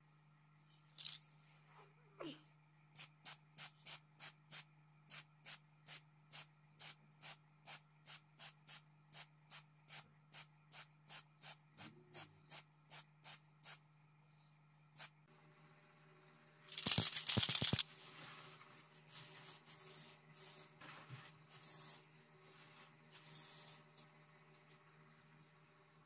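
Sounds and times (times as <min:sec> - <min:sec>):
spray paint can hissing: 0:16.7 - 0:17.8.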